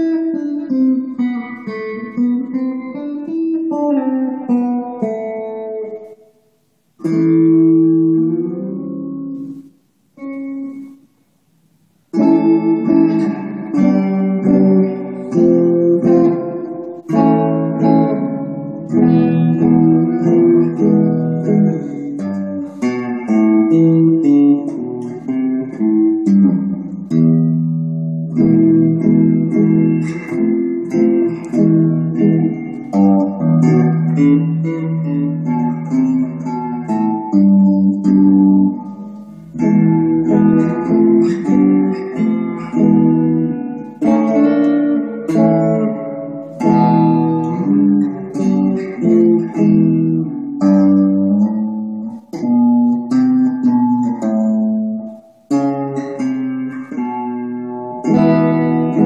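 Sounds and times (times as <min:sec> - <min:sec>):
electric guitar chords: 0:00.0 - 0:59.0.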